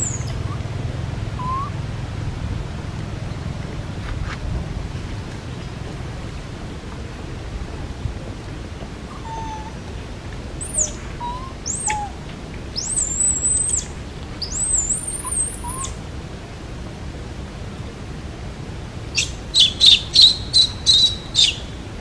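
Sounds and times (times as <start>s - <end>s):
high bird whistles: 0.0s - 0.6s, 1.4s - 1.7s, 10.6s - 12.2s, 12.8s - 16.0s, 19.2s - 21.7s
faint bird chirps: 0.0s - 0.7s, 1.4s - 1.8s, 10.6s - 12.2s, 12.8s - 16.0s, 19.2s - 21.8s
low background rumble: 0.0s - 22.0s.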